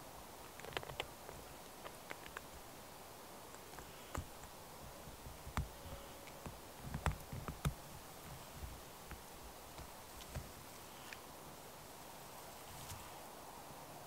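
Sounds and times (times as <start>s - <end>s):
dry grass rustling: 0.0s - 14.0s
light clicks and knocks: 3.6s - 10.6s.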